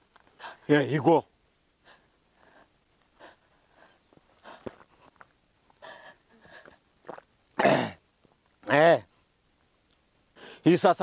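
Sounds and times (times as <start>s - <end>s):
faint breathing: 1.8s - 5.2s, 5.8s - 6.9s, 10.3s - 10.7s.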